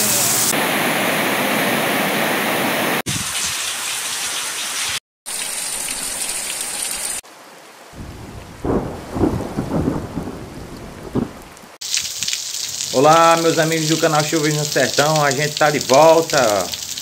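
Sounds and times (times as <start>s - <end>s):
heavy rain falling: 7.9s - 17.0s
rolling thunder: 8.0s - 11.8s.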